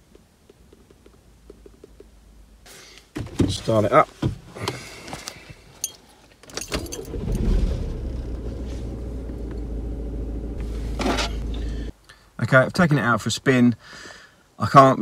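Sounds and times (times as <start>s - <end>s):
diesel engine starting and idling: 6.7s - 11.9s.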